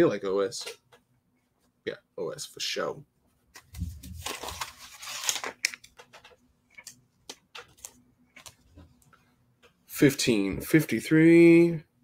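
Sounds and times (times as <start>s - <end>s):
fabric rustling: 3.5s - 5.4s.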